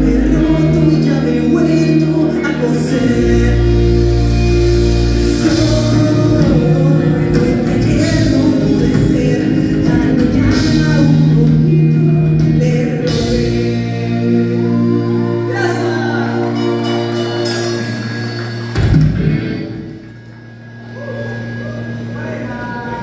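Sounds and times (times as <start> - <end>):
person singing: 0.0 - 17.8
rock band playing: 0.0 - 23.0.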